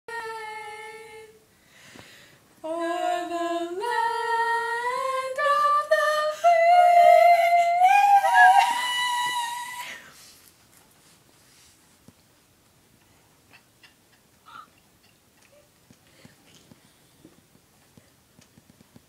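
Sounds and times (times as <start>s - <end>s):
woman singing unaccompanied: 0.1s - 1.4s, 2.6s - 10.0s.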